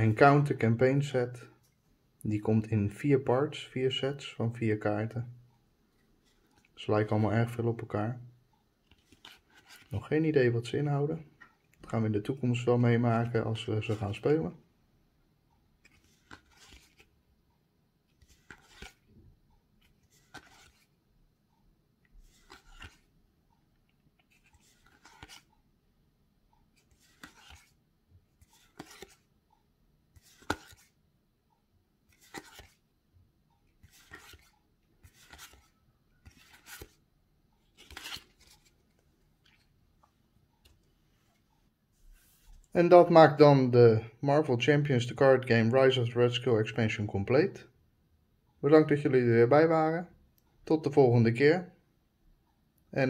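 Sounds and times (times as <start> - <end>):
cards sliding off a stack: 15.8 - 17.1, 18.2 - 19.0, 20.1 - 20.9, 22.2 - 23.0, 24.3 - 25.5, 26.8 - 27.8, 28.4 - 29.2, 30.2 - 31.0, 32.1 - 32.8, 33.8 - 37.0, 37.7 - 38.8.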